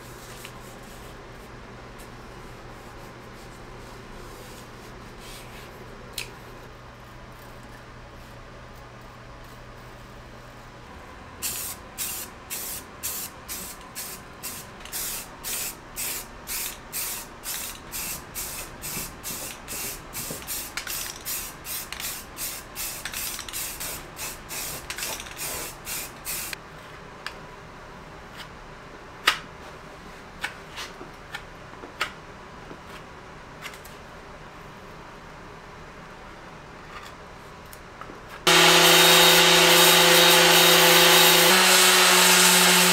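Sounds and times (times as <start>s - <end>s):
spray can hissing in bursts: 11.4s - 26.6s.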